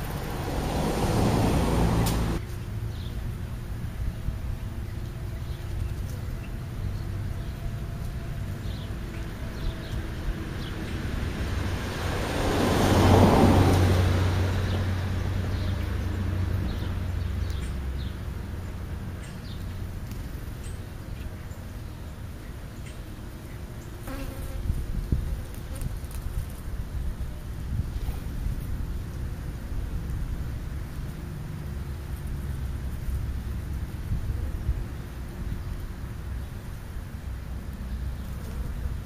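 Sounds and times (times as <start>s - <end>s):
vehicle passing by: 0.0s - 24.2s.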